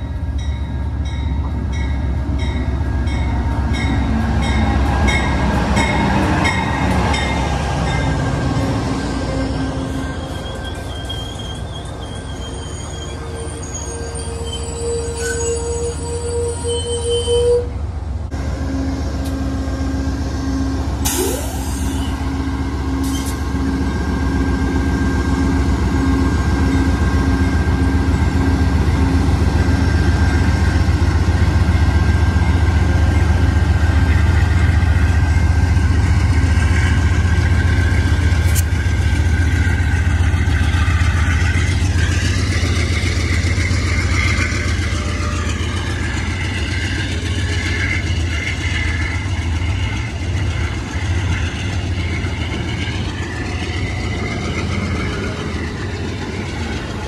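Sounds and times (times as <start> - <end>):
diesel locomotive rumbling: 0.0 - 57.0
train cars rolling past: 0.0 - 57.0
wavering high squeal: 8.6 - 17.7, 20.3 - 23.4.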